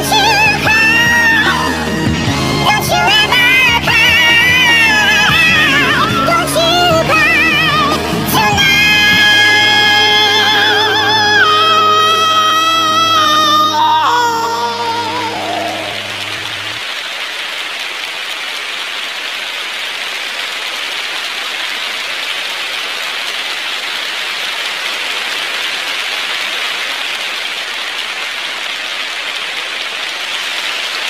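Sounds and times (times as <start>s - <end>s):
child singing: 0.0s - 16.3s
audience applauding: 0.0s - 31.0s.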